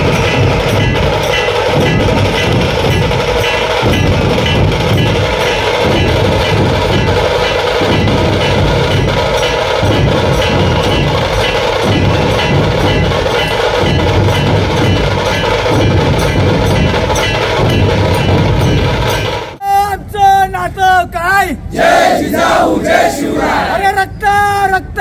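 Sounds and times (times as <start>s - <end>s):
barrel drums pounding: 0.0s - 19.6s.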